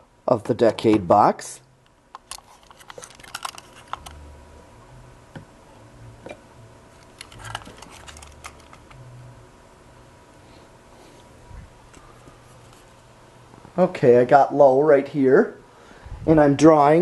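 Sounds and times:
plugs and cords clicking and rattling: 2.1 - 4.2, 7.0 - 9.0.

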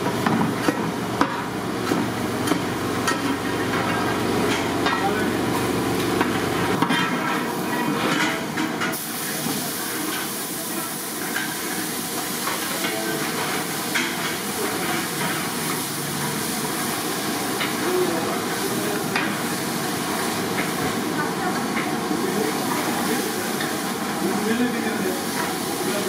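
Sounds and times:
steady hiss of gas burner: 0.0 - 26.0.

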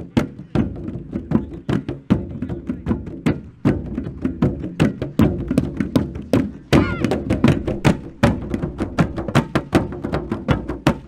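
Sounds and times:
drums struck with sticks: 0.0 - 11.0.

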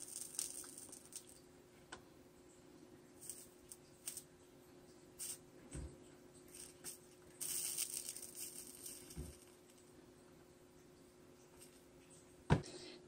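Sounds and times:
solder crackling and popping: 0.0 - 2.1, 5.1 - 10.0
faint steady hum: 0.0 - 13.0
flux hissing sizzle: 3.1 - 4.3, 5.1 - 5.9, 6.5 - 9.9.

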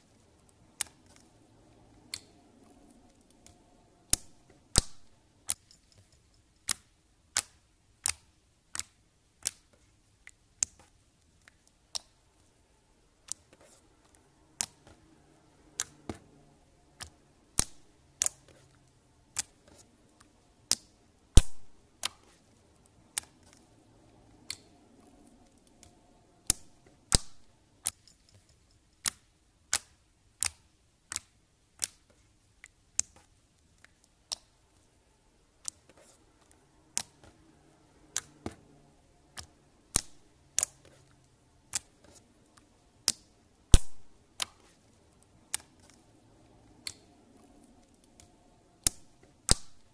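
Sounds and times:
slime popping while kneaded: 21.4 - 22.3, 43.0 - 44.7.

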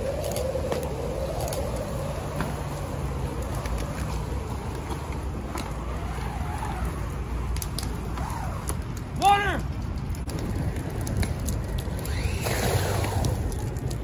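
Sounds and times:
fire crackling and popping: 0.0 - 14.0
low fire rumble: 0.0 - 14.0.

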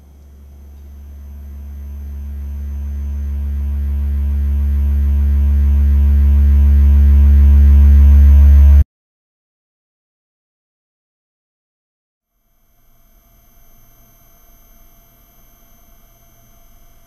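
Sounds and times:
low humming drone: 0.0 - 8.8.

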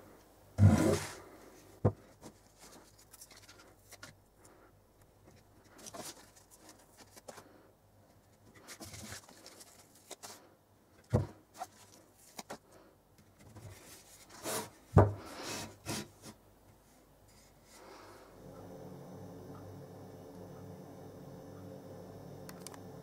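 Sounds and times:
backing paper rustling: 2.0 - 4.5, 5.3 - 10.5, 11.1 - 12.8, 13.4 - 16.4.

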